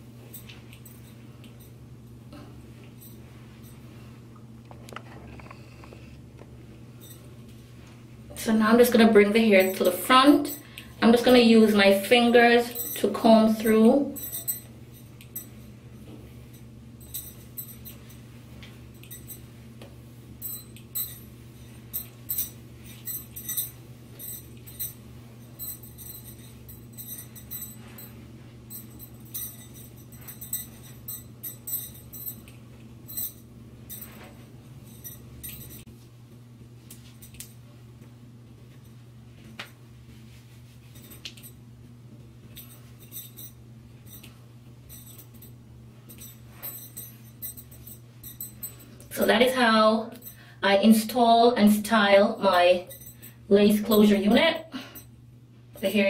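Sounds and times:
steady low hum: 0.0 - 56.0
jewellery clinking: 9.6 - 19.5, 20.4 - 35.9, 40.9 - 41.6, 42.5 - 49.2, 52.4 - 55.1.

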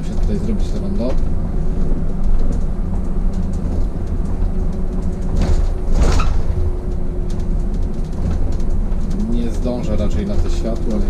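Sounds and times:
bus engine and road rumble: 0.0 - 11.0.

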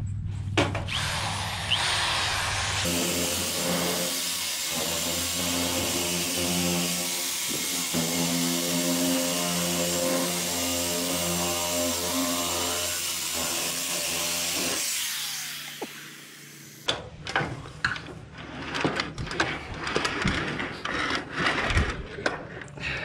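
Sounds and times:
electric metal shear whining: 0.9 - 16.9.

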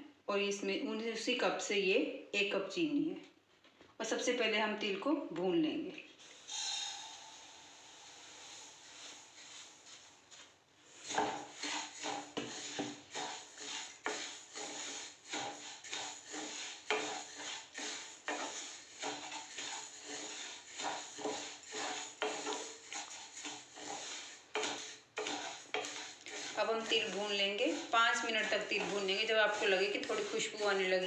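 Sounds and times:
spatula scraping seeds in pan: 8.0 - 31.0.

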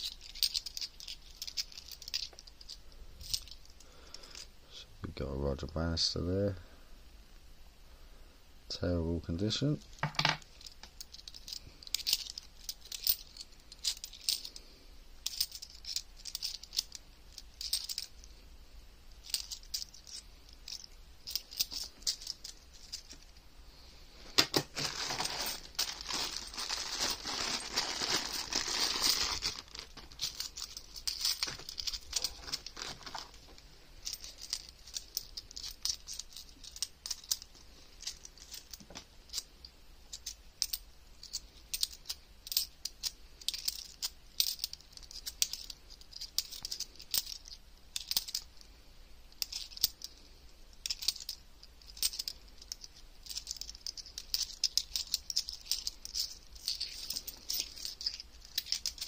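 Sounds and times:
coins clinking: 0.0 - 3.6, 10.0 - 18.3, 19.2 - 23.3, 24.4 - 33.3, 34.0 - 39.4, 40.1 - 48.5, 49.4 - 50.2, 50.8 - 59.0
plastic bag crinkling: 24.2 - 37.4.

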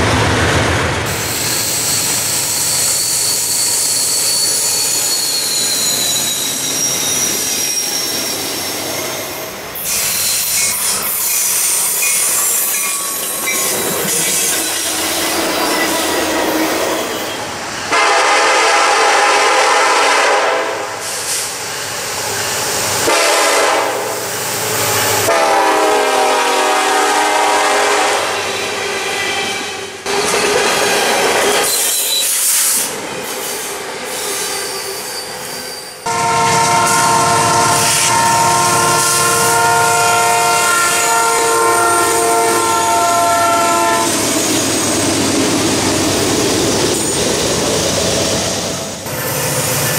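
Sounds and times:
locomotive air horn blasts: 17.9 - 21.0, 23.0 - 24.2, 25.3 - 28.4, 36.1 - 44.2.

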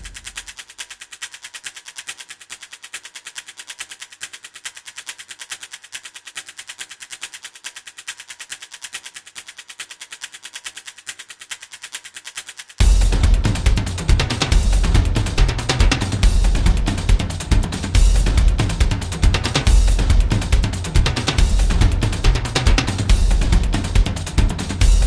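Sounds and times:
rapid high ticking pulse: 0.0 - 1.1, 12.7 - 25.0.

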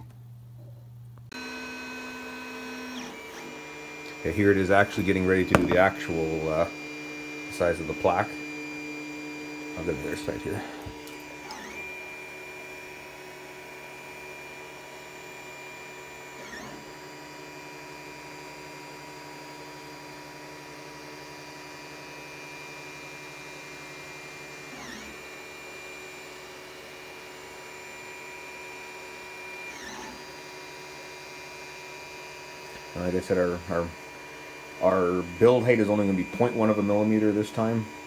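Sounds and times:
stepper motors whining: 9.8 - 12.0.

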